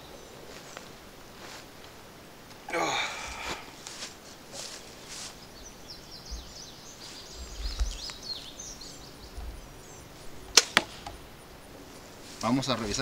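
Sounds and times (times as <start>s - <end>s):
faint bird chirps: 4.7s - 10.5s
bow string snap: 10.5s - 11.2s.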